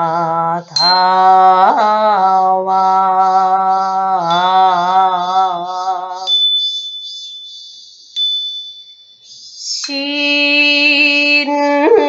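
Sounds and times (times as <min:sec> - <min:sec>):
voice chanting long wavering note: 0:00.0 - 0:06.3, 0:09.6 - 0:12.0
small bell ringing: 0:00.0 - 0:12.0.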